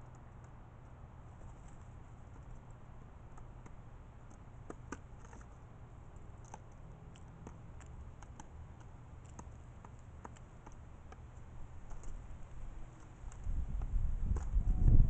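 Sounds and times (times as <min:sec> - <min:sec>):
pigeon beak tapping on plastic: 0:03.3 - 0:05.6, 0:06.2 - 0:12.2.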